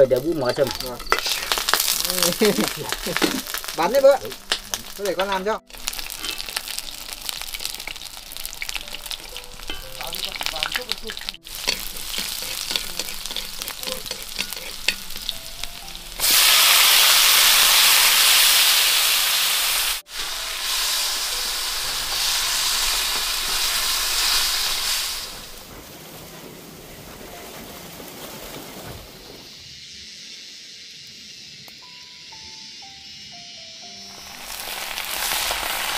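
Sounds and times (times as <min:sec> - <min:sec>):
tofu sizzling in hot oil: 0:00.0 - 0:25.6, 0:34.2 - 0:35.9
stirring clicks: 0:08.6 - 0:16.1.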